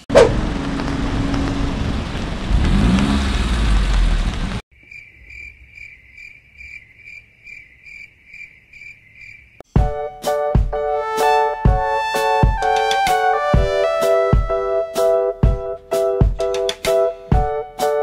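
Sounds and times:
traffic on wet street: 0:00.0 - 0:04.6
cricket chirp sound effect: 0:04.8 - 0:09.6.

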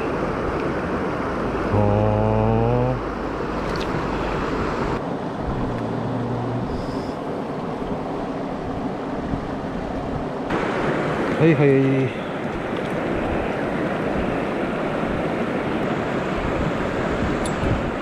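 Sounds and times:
man humming: 0:01.7 - 0:03.0, 0:05.8 - 0:07.2
mountain stream rushing: 0:03.0 - 0:18.0.

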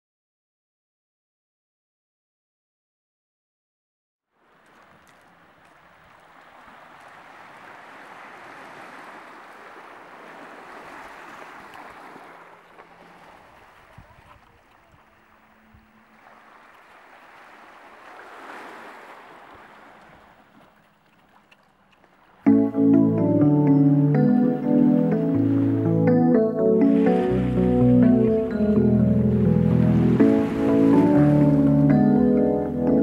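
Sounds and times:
waves washing onto pebble beach: 0:04.4 - 0:13.6, 0:16.2 - 0:20.3.

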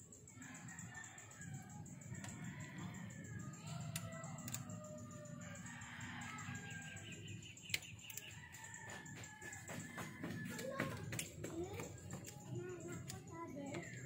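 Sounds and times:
faint background music: 0:00.0 - 0:14.0
bird calls: 0:03.6 - 0:08.8
sharp clicks: 0:03.7 - 0:04.8.

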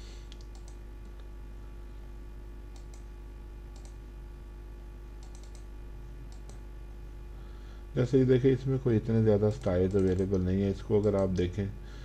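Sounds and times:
electrical hum: 0:00.0 - 0:12.0
computer mouse clicking: 0:00.3 - 0:01.3, 0:02.7 - 0:03.1, 0:03.7 - 0:04.0, 0:05.2 - 0:05.7, 0:06.3 - 0:06.6, 0:09.5 - 0:10.4, 0:11.0 - 0:11.4.

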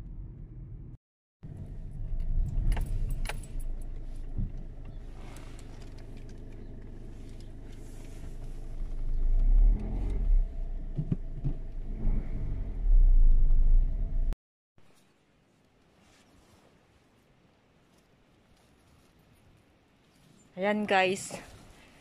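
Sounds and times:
car engine rumble inside cabin: 0:00.0 - 0:14.4.

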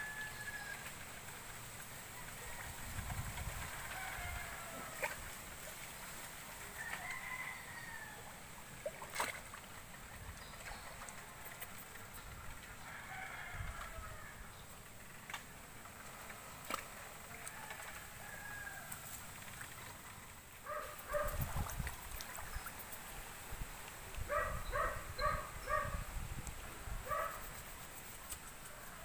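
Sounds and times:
faint rooster crowing: 0:00.0 - 0:01.0, 0:02.1 - 0:05.3, 0:06.7 - 0:08.5, 0:12.8 - 0:14.6, 0:17.3 - 0:19.2, 0:28.0 - 0:29.0
steady outdoor hiss: 0:00.0 - 0:29.0.

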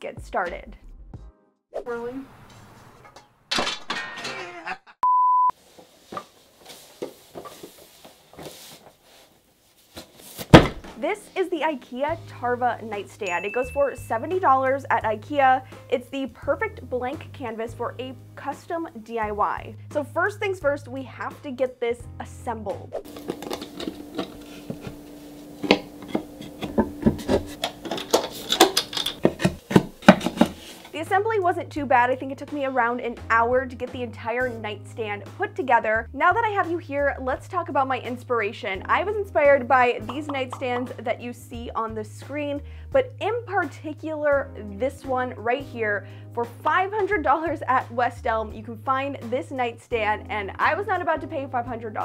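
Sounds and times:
woman speaking: 0:00.0 - 0:00.7, 0:01.8 - 0:02.3, 0:11.0 - 0:22.8, 0:31.0 - 0:52.0
censor bleep: 0:05.0 - 0:05.5
cardboard box knocking on floor: 0:10.4 - 0:10.9, 0:25.6 - 0:27.6.

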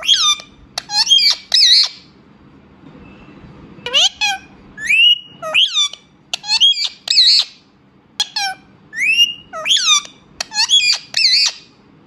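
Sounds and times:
parrots squawking: 0:00.0 - 0:02.1, 0:03.8 - 0:11.8.

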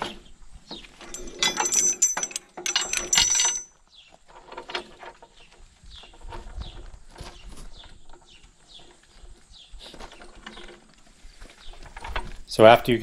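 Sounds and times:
chain rattling against metal: 0:01.0 - 0:05.3.

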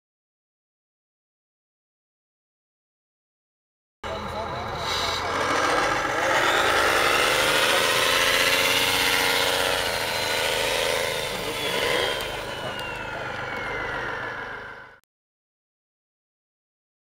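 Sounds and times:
toy truck motor whining: 0:04.1 - 0:15.0.

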